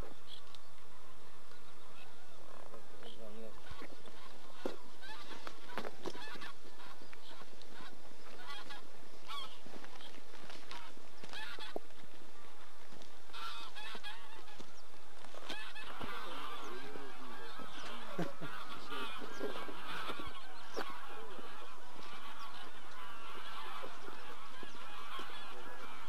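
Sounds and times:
geese honking in flight: 3.2 - 9.6, 10.6 - 11.8, 13.3 - 26.0.

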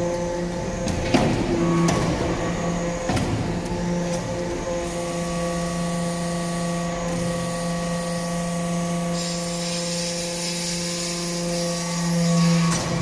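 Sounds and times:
hydraulic press humming and whining: 0.0 - 13.0.

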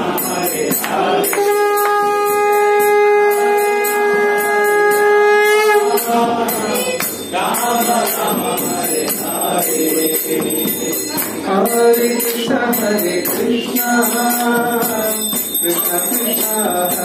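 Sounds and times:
hand cymbals: 0.0 - 17.0
bells ringing: 0.1 - 17.0
conch shell blown: 1.2 - 7.0.

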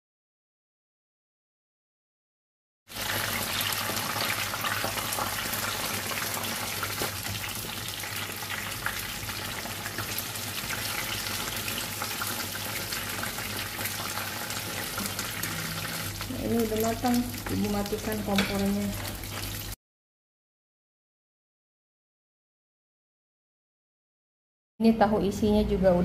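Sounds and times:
food deep-frying in hot oil: 2.9 - 19.8.

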